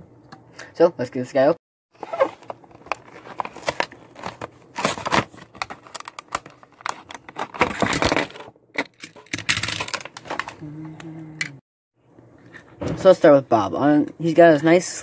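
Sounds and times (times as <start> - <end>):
plastic packaging crinkling and tearing: 2.0 - 10.6.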